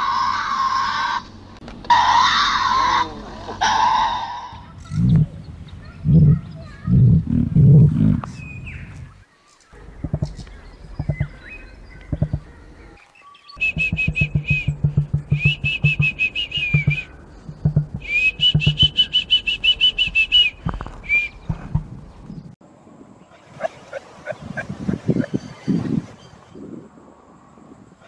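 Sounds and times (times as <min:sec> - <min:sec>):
low pulsing thumps: 0:04.8 - 0:09.2, 0:09.8 - 0:12.9, 0:13.6 - 0:22.6
emu low drumming: 0:09.8 - 0:12.8, 0:13.6 - 0:22.6
emu chicks chirping: 0:09.8 - 0:22.5.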